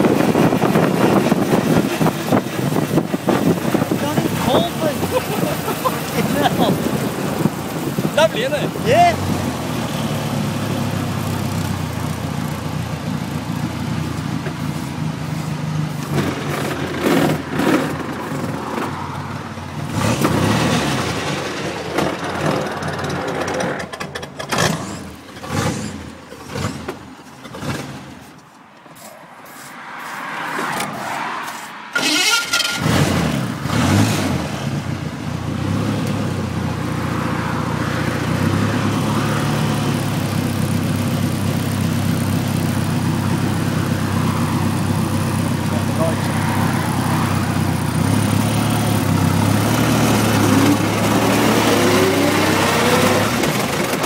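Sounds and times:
racing car engine revving: 15.9s - 19.0s, 19.8s - 28.2s, 30.2s - 36.3s, 44.2s - 54.0s.

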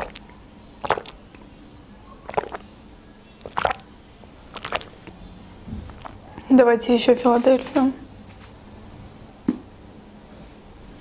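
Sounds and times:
person swallowing water: 0.0s - 1.2s, 2.3s - 2.6s, 3.4s - 3.8s, 4.5s - 5.1s, 5.8s - 6.3s.

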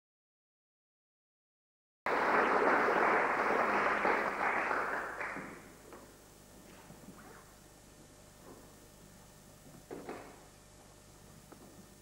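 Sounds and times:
audience applauding: 2.1s - 5.8s.

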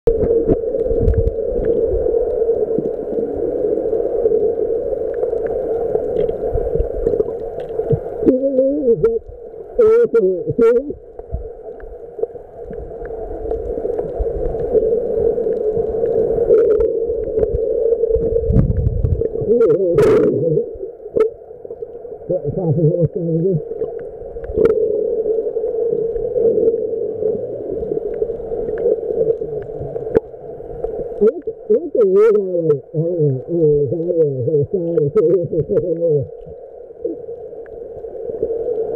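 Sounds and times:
underwater low hum: 0.0s - 38.9s
moving water rumbling: 0.1s - 38.9s
faint clicks: 0.2s - 8.3s, 27.7s - 31.6s.

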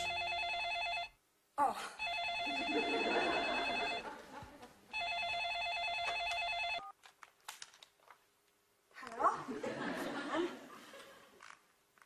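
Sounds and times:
cordless telephone ringing: 0.0s - 1.2s, 2.0s - 4.1s, 5.0s - 6.9s.

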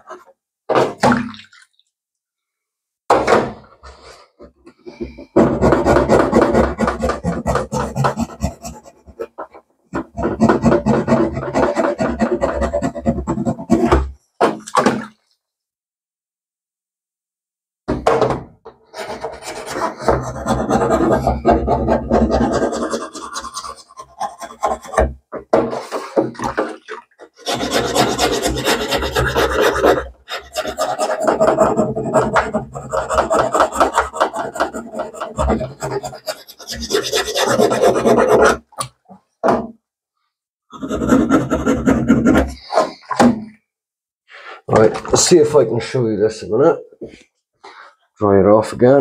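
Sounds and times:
needle file rasping: 5.6s - 9.3s, 19.0s - 25.0s, 27.3s - 38.7s, 40.7s - 43.2s.

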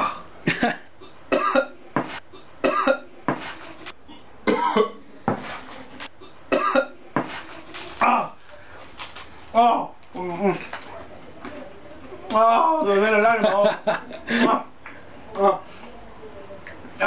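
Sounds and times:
man coughing and gasping: 0.0s - 3.1s, 6.2s - 7.0s.

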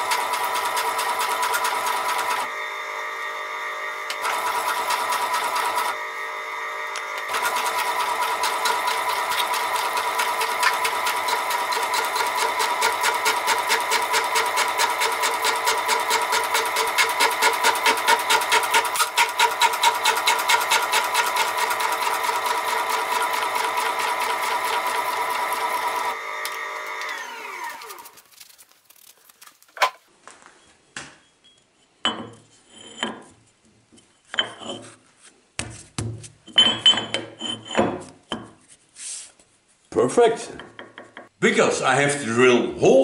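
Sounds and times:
metal shaper running: 0.0s - 30.0s.

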